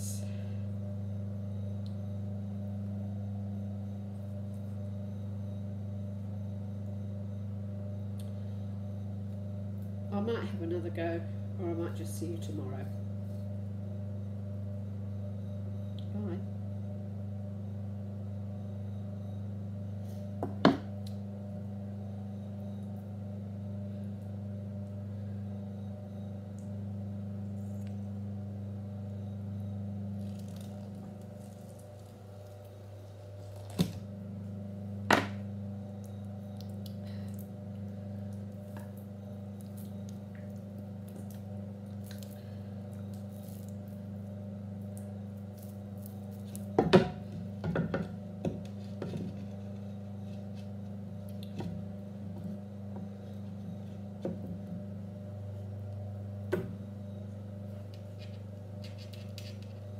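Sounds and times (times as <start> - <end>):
potter's wheel motor humming: 18.4 - 59.9
wet clay being worked: 38.3 - 47.4.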